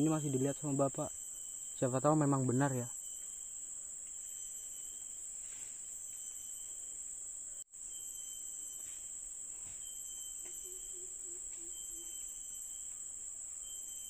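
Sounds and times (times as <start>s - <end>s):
forest insects chorus: 0.0s - 14.0s.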